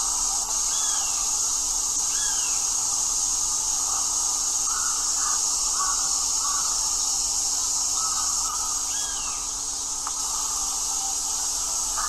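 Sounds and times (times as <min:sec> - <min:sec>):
high-pitched insect drone: 0:00.0 - 0:12.0
faint bird chirps: 0:08.0 - 0:12.0.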